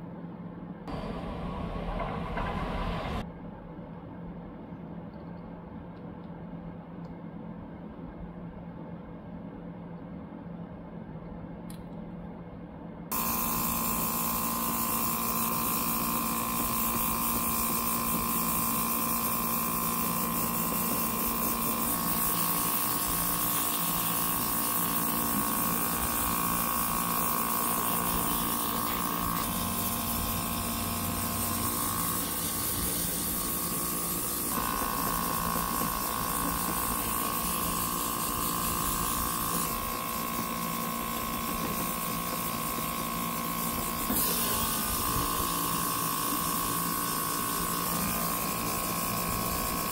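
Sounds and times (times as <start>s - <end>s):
small compressor hum: 0.0s - 49.9s
airbrush hiss: 13.1s - 39.8s.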